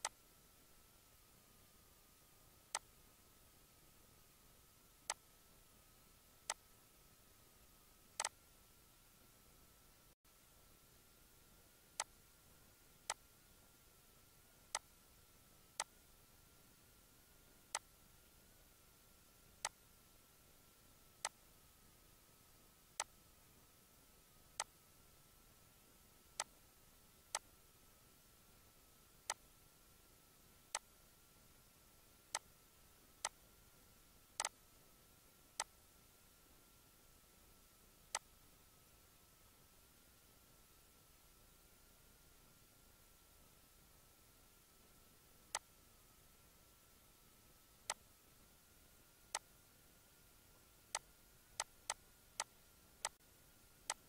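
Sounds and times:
faint high-pitched whine: 0:00.0 - 0:54.0
computer mouse clicking: 0:08.2 - 0:08.4, 0:34.4 - 0:34.6.

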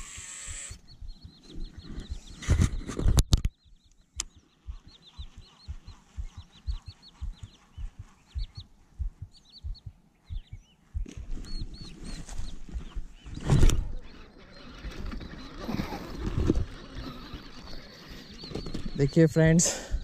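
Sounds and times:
sharp clicks: 0:00.0 - 0:11.7
birds chirping: 0:00.0 - 0:20.0
low thuds: 0:00.7 - 0:03.5, 0:04.2 - 0:14.0
rustling noise: 0:01.5 - 0:03.5.

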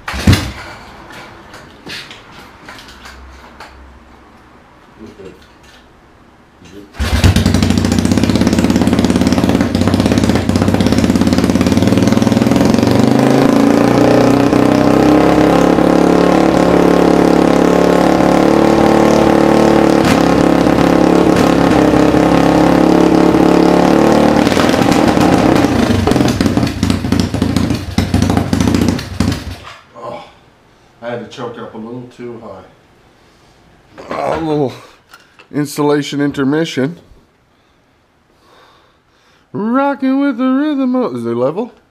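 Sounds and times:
engine starting and running: 0:00.0 - 0:01.3, 0:07.0 - 0:29.7.

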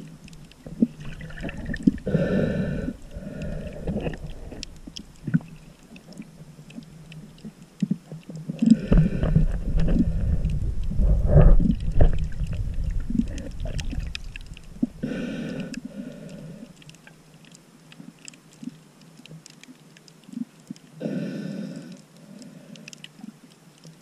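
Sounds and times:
muffled underwater rumble: 0:00.0 - 0:16.8
crackling clicks underwater: 0:00.0 - 0:24.0.

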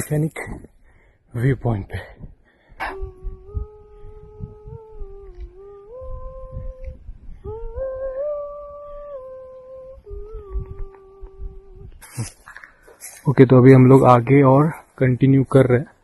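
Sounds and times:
person humming: 0:02.8 - 0:12.4.

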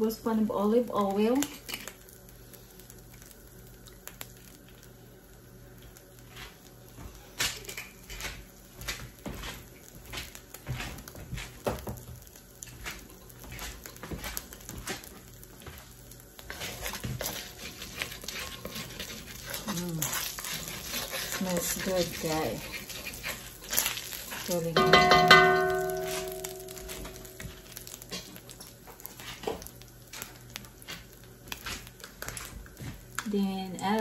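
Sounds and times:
hot oil popping and crackling: 0:00.0 - 0:34.0
wooden spoon scraping wok: 0:09.0 - 0:12.0, 0:12.6 - 0:33.0.

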